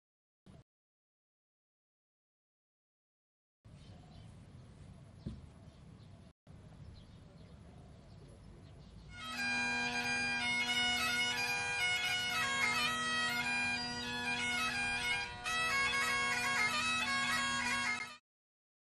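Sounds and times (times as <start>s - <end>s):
bagpipes playing over drone: 9.1s - 18.2s.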